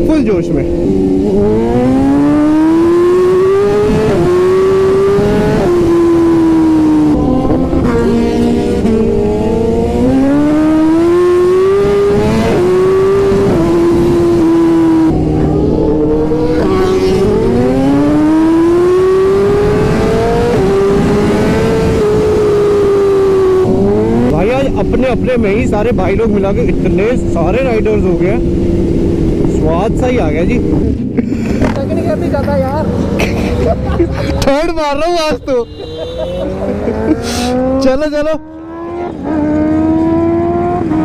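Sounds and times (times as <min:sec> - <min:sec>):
wind rushing over microphone: 0:00.0 - 0:32.1
motorcycle engine accelerating: 0:00.0 - 0:33.3, 0:36.2 - 0:41.0.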